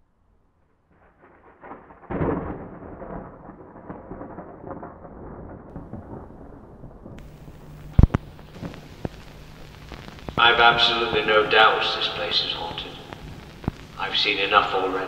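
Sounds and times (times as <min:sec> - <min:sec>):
loud thunderclap: 0:01.0 - 0:11.3
rain: 0:01.0 - 0:15.0
thunder rumbling: 0:01.0 - 0:15.0.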